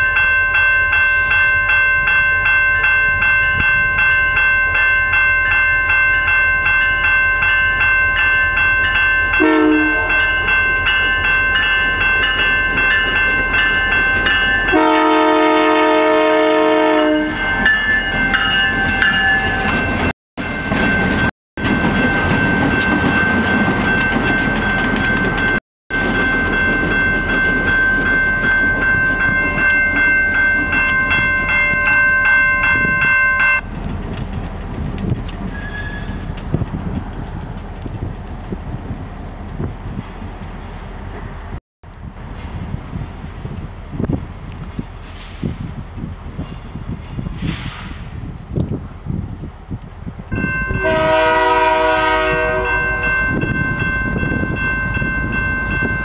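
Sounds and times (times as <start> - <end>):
locomotive air horn chords: 9.4 - 10.2, 14.7 - 17.4, 50.8 - 53.0.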